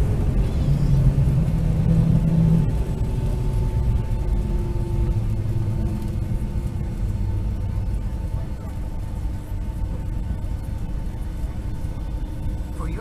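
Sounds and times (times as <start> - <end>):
engine and wheel rumble: 0.0 - 13.0
low hum: 0.0 - 13.0.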